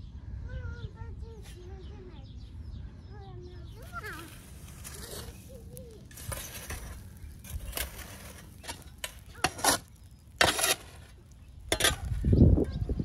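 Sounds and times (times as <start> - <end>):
charcoal clinking: 3.8 - 12.3
metal shovel scraping embers: 3.8 - 12.7.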